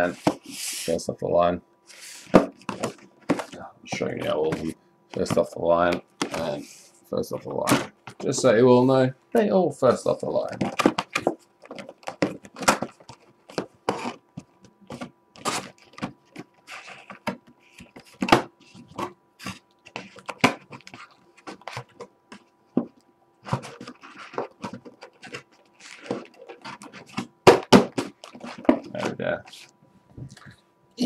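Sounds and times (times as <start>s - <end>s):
cardboard rustling: 1.9s - 6.8s, 10.3s - 29.7s.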